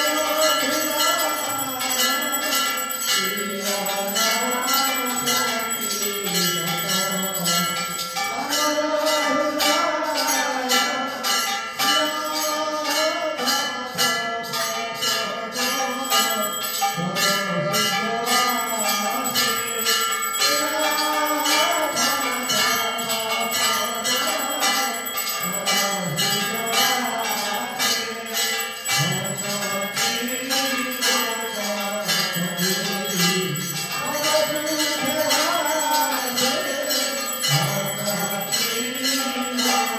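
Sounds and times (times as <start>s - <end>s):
temple bells ringing rapidly: 0.0s - 39.9s
voices singing a devotional chant: 0.0s - 39.9s.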